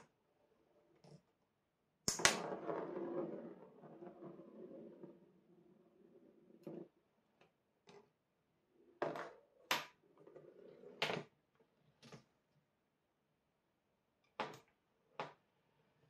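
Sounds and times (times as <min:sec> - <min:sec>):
marbles rolling on cardboard: 0:02.1 - 0:07.0.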